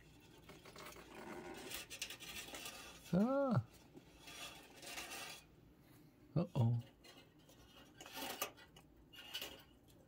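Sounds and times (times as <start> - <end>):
man humming: 3.1 - 3.7.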